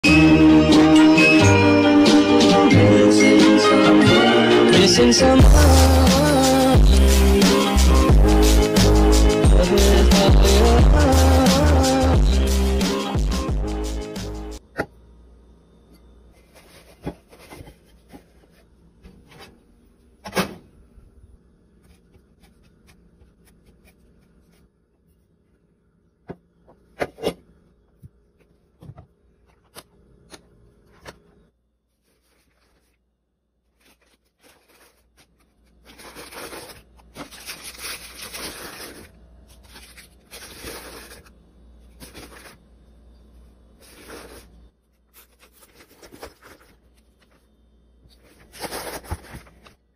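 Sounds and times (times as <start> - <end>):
paper and packaging rustling: 16.4 - 19.6, 32.0 - 33.1, 33.7 - 41.3, 41.9 - 42.6, 43.8 - 44.5, 45.1 - 47.4, 48.1 - 49.8.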